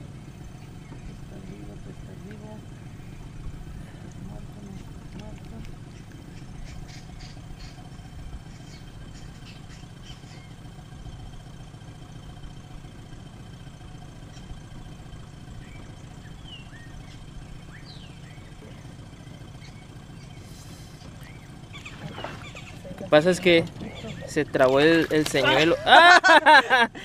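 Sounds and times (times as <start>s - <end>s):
outboard motor idling: 0.0s - 27.0s
faint bird chirps: 0.4s - 1.6s, 5.8s - 10.8s, 14.2s - 23.0s, 23.7s - 24.6s.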